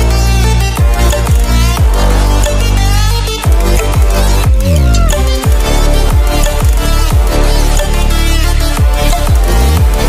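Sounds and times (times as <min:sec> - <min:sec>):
electronic music with deep bass: 0:00.0 - 0:10.0
falling bass hit: 0:03.9 - 0:07.6.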